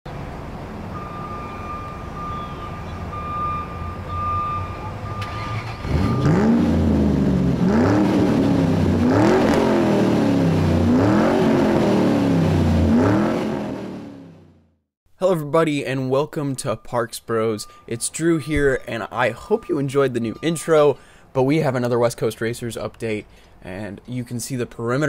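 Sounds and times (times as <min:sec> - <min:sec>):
race car engines revving: 0:04.2 - 0:14.4.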